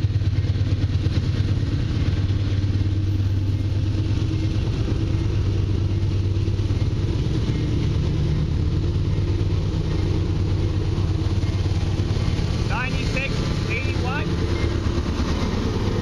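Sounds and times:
diesel locomotive engine rumble: 0.0s - 16.0s.

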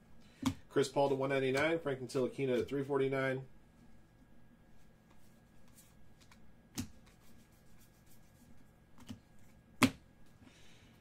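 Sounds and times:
cards sliding and rustling: 4.8s - 9.6s.

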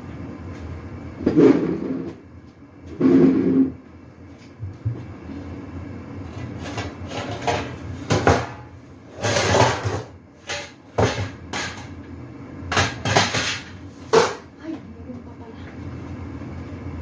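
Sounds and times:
metal pans clanking and scraping: 6.6s - 12.0s, 12.7s - 14.5s.

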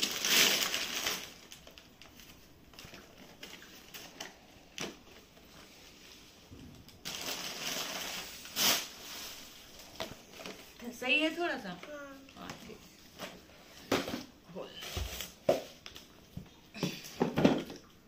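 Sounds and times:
wrapping paper tearing and rustling: 0.0s - 5.3s, 6.9s - 10.7s.

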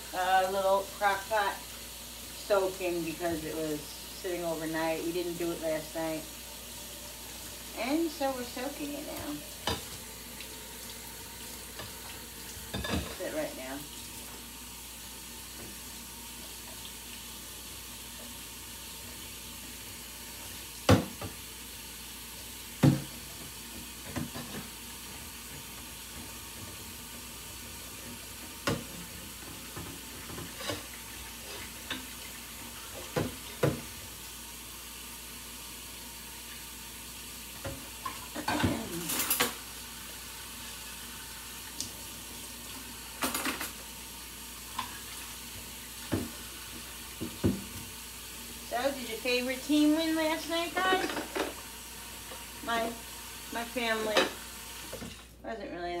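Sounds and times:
faucet running into sink: 0.1s - 55.3s
dishes clinking and clattering: 12.7s - 13.2s, 29.7s - 31.0s, 38.0s - 39.6s, 43.2s - 43.8s, 50.8s - 51.6s.

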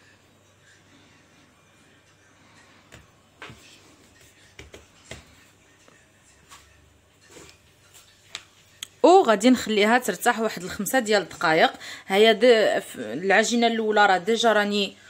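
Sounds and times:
hands pressing dough on countertop: 2.9s - 5.4s.

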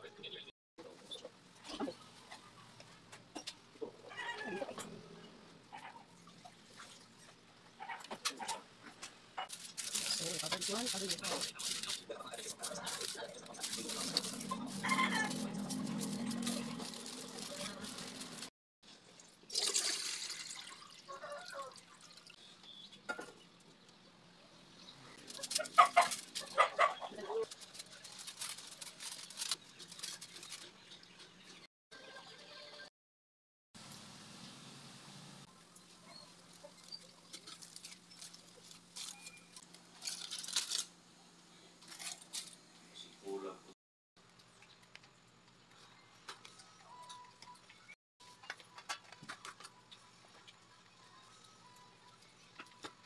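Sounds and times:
aluminium foil crinkling: 9.5s - 18.5s, 25.1s - 31.1s, 36.4s - 40.9s, 41.8s - 42.6s
water pouring into a metal pot: 19.2s - 22.3s.

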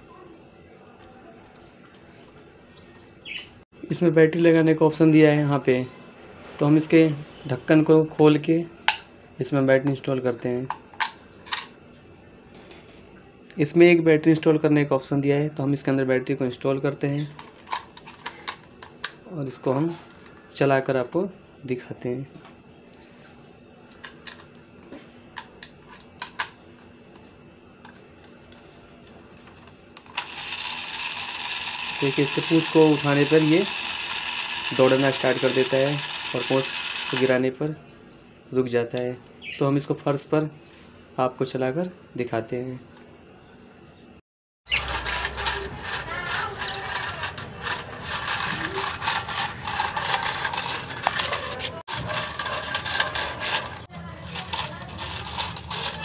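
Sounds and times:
toy motor and gears whirring: 30.0s - 37.4s, 44.7s - 56.0s
plastic legs clattering: 44.7s - 56.0s.

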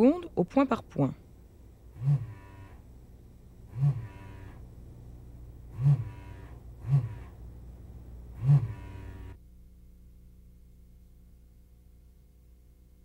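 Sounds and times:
steady low hum: 0.0s - 13.0s
vacuum pump humming bursts: 1.3s - 9.4s.

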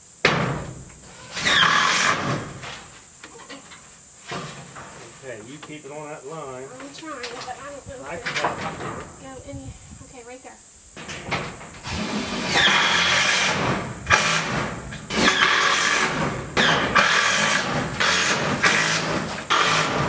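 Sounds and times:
cordless power driver whining: 11.8s - 20.0s.

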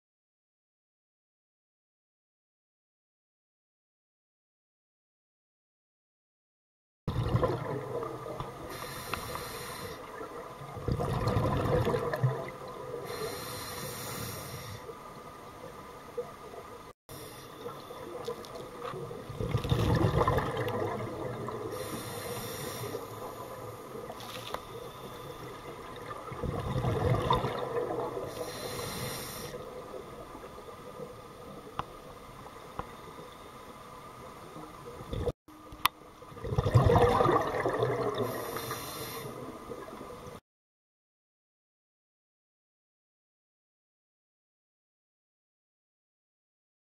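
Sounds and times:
exhaled bubbles rushing: 7.1s - 8.7s, 10.1s - 13.0s, 18.1s - 21.8s, 25.6s - 28.4s, 36.3s - 38.5s
regulator inhale hiss: 8.7s - 10.1s, 13.0s - 15.0s, 17.1s - 18.1s, 21.6s - 25.7s, 28.3s - 29.8s, 38.2s - 39.5s.

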